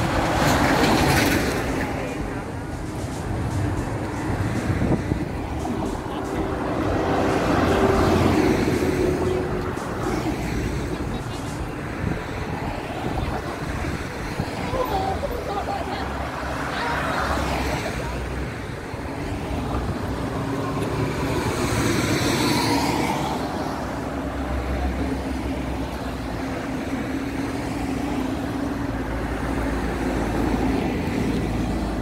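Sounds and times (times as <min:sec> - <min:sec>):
vehicle passing close by: 0:00.0 - 0:11.3
traffic engine and tyre hum: 0:00.0 - 0:32.0.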